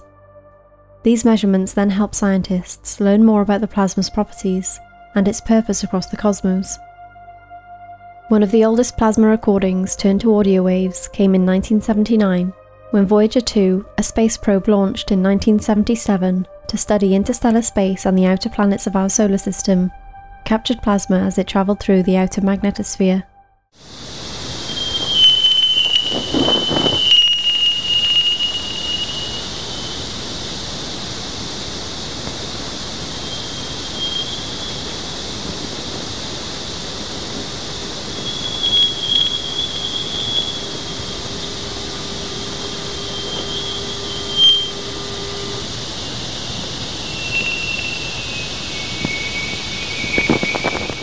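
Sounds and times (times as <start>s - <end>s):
low steady tone: 0.0s - 23.1s, 36.2s - 51.0s
steady hiss: 23.8s - 51.0s
thin high wavering whistle: 24.1s - 51.0s.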